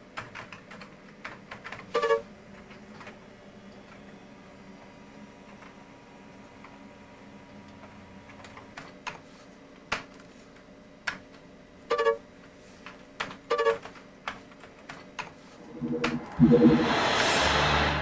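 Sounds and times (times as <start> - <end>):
short pitched blips: 15.6 - 17.4
loud music: 15.6 - 18.0.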